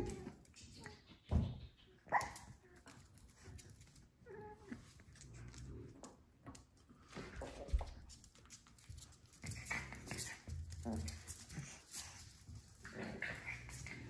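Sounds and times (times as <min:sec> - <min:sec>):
dog yipping: 0:01.9 - 0:02.8.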